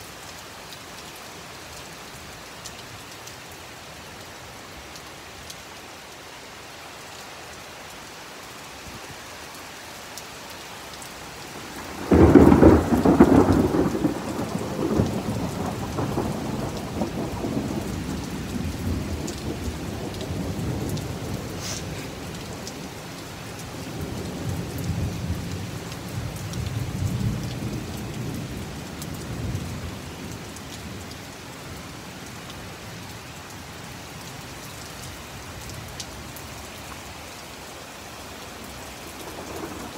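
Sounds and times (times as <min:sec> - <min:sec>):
heavy rain falling: 0:00.0 - 0:39.9
thunder crack and rumble: 0:11.8 - 0:21.4.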